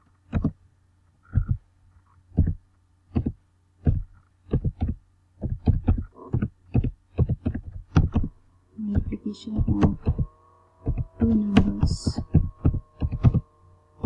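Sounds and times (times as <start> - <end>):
faint low hum: 0.0 - 14.0
keyboard keystrokes: 10.8 - 13.4.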